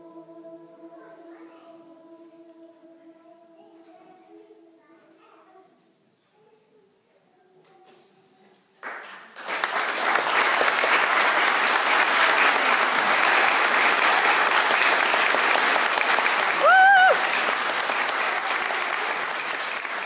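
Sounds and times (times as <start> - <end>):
audience applause: 9.4 - 20.0.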